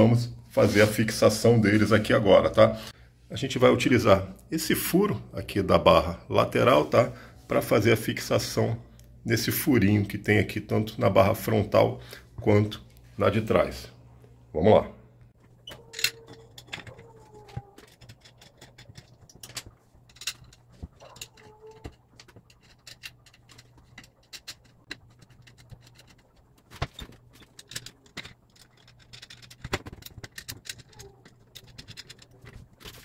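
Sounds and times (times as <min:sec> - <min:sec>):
faint squeaks: 0:15.5 - 0:19.0, 0:20.4 - 0:26.2, 0:30.6 - 0:33.0.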